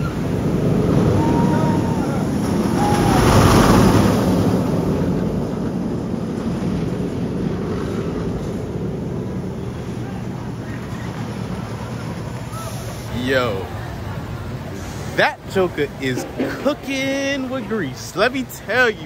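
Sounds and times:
roller coaster train roaring: 0.0s - 19.0s.

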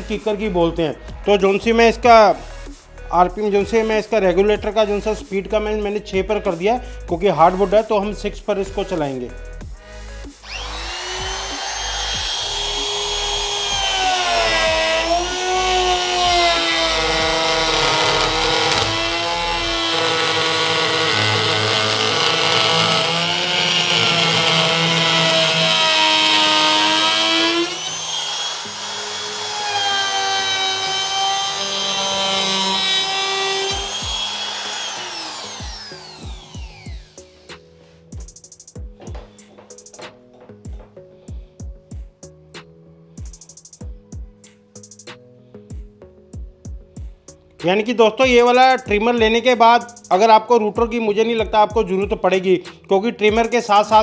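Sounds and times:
router motor whining: 10.4s - 37.5s.

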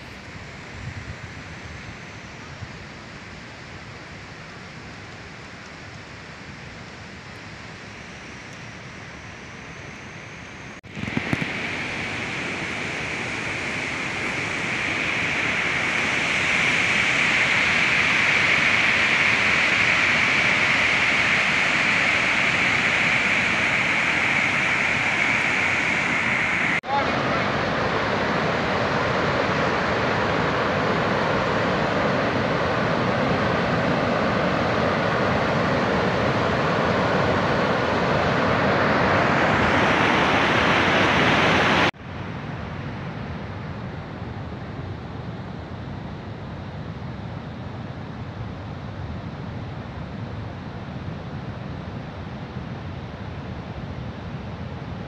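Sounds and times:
floodwater rushing: 10.9s - 41.9s.

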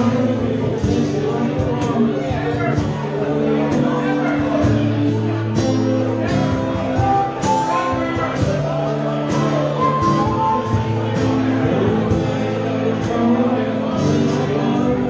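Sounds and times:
cajon beat: 0.0s - 13.4s
person singing: 0.0s - 15.0s
strummed acoustic guitars: 0.0s - 15.0s.

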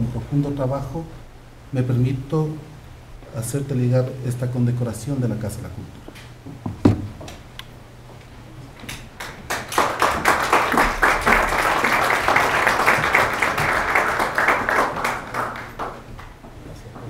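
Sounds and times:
audience applauding: 8.9s - 16.5s.

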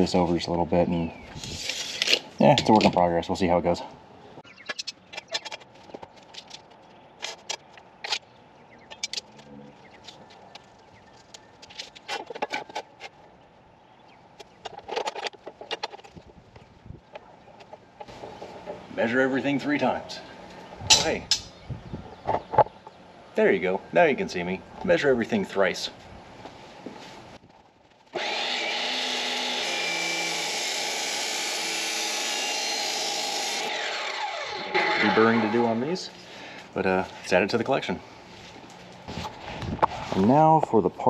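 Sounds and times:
chop saw cutting steel: 28.1s - 35.9s.

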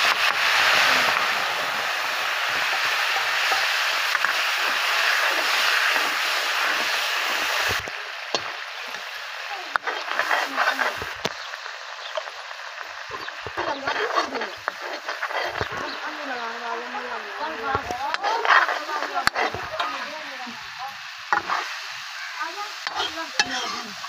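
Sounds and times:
oil popping and spattering: 0.0s - 24.0s
spice paste sizzling in hot oil: 0.0s - 24.0s.

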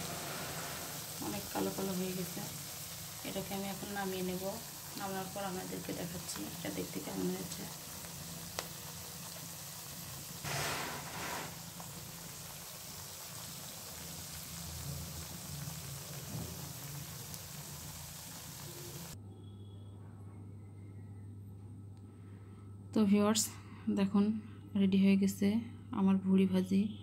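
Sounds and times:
tripe sizzling in oil: 0.0s - 19.2s.

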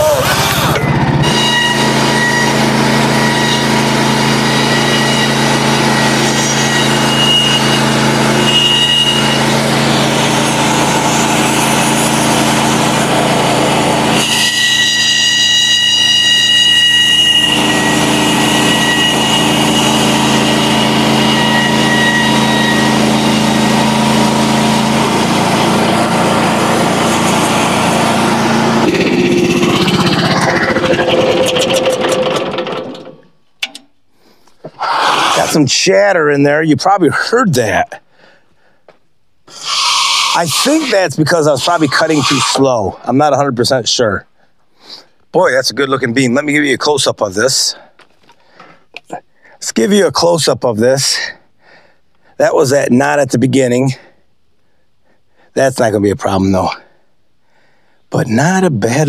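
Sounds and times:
band sawmill cutting log: 0.0s - 33.2s, 34.7s - 35.7s, 39.5s - 42.9s
high ringing blade chatter: 39.6s - 42.6s.

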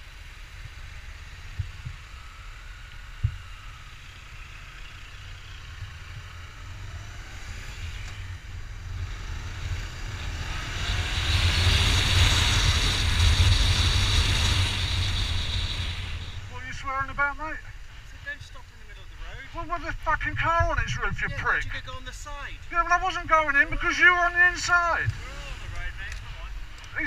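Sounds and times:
motorcycle engine running: 0.0s - 27.0s
wind rushing over microphone: 8.2s - 17.6s, 19.5s - 27.0s.

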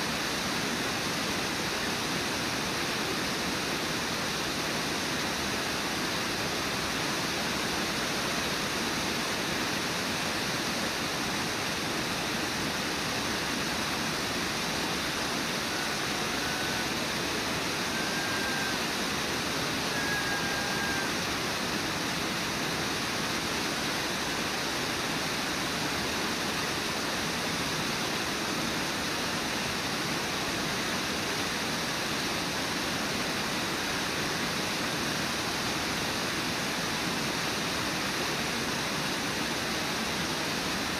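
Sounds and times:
waterfall rushing: 0.0s - 40.9s
faint high whistles: 17.8s - 18.9s, 19.8s - 21.2s.

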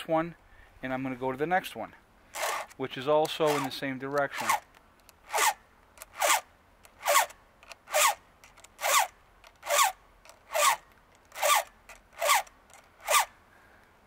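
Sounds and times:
file rasping on steel chain: 2.3s - 2.7s, 3.3s - 4.6s, 5.2s - 6.4s, 7.0s - 7.3s, 7.9s - 13.3s.

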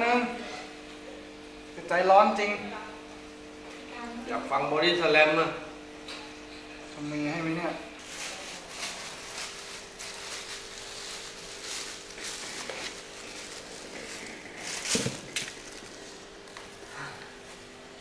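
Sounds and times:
faint steady hum: 0.0s - 18.0s
plastic bag crinkling: 8.0s - 16.9s.

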